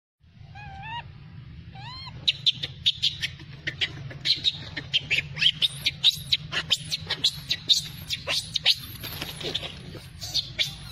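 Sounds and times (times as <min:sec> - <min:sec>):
low steady hum: 0:00.2 - 0:10.9
animal cries wavering: 0:00.4 - 0:10.9.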